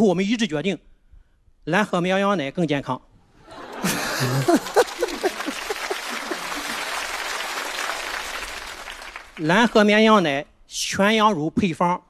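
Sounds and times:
audience laughing: 3.4s - 8.7s
audience applauding: 3.4s - 9.9s.

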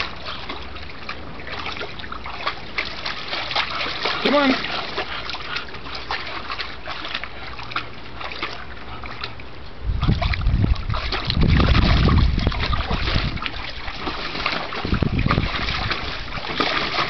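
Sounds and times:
water sloshing and splashing: 0.0s - 17.0s
low rumble on microphone: 9.6s - 17.0s.

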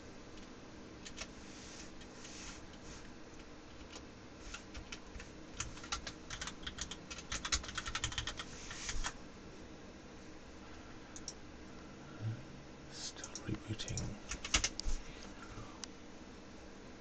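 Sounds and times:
computer keyboard typing: 0.4s - 1.3s, 3.7s - 9.1s, 13.2s - 14.8s.

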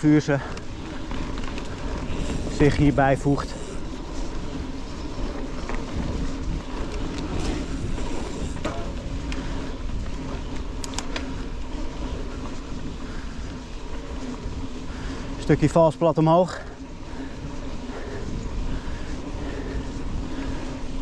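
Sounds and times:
bike clicks and rattles: 0.0s - 21.0s
bike tyres rumbling on dirt: 0.0s - 21.0s
wind on camera: 0.5s - 15.0s.

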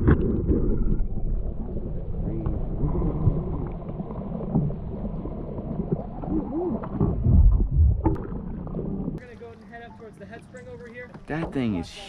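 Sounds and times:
underwater rumble of moving water: 0.0s - 12.0s.

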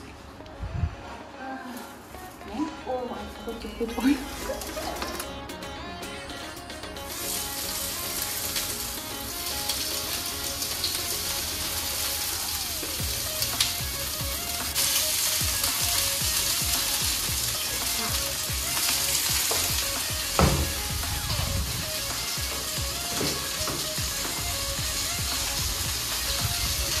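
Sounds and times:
meat sizzling in hot oil: 7.1s - 27.0s
sharp knock: 20.4s - 20.8s.

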